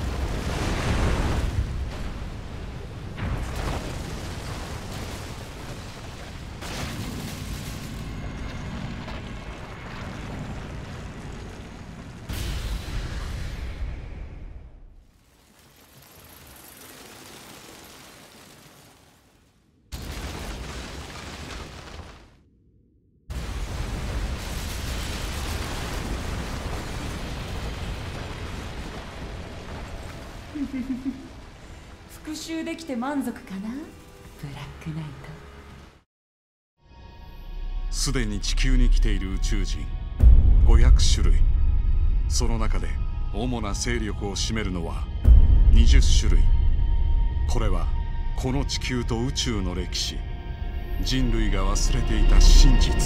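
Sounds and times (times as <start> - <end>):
planet exploding: 0.0 - 22.5
deep rumble: 1.4 - 15.1, 38.0 - 53.0.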